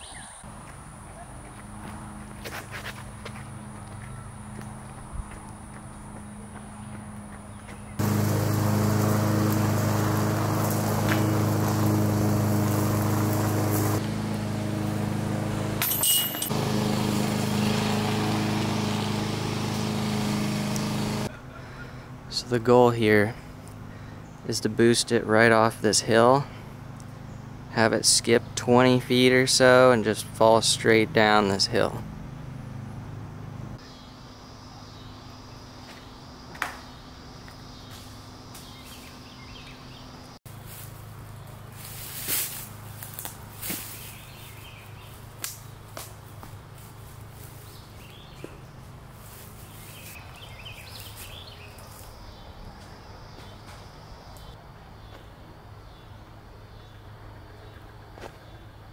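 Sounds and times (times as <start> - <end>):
insects buzzing: 0.4 - 21.3, 31.8 - 58.9
footsteps: 1.4 - 14.4
machine hum: 8.0 - 22.4
short scrape or rustle: 41.8 - 42.8, 43.6 - 44.2.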